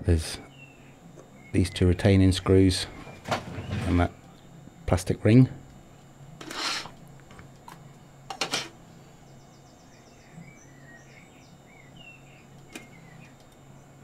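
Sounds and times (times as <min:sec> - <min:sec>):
low steady hum: 0:00.0 - 0:14.0
faint bird chirps: 0:09.1 - 0:14.0.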